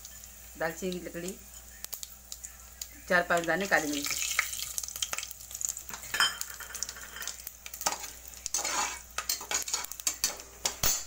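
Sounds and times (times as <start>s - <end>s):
spices sizzling in hot oil: 0.0s - 11.0s
spoon scraping metal pot: 6.1s - 10.8s.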